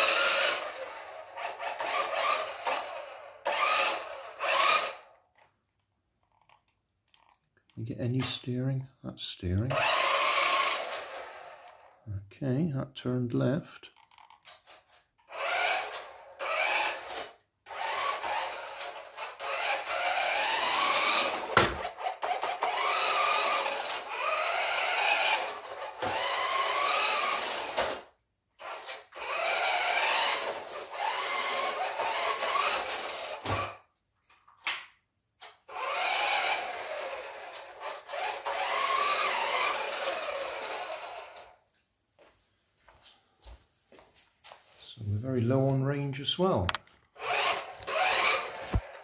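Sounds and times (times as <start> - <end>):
toy car electric motor whining: 0.0 - 5.1, 9.7 - 12.0, 14.0 - 33.9, 35.4 - 41.6, 47.2 - 49.0.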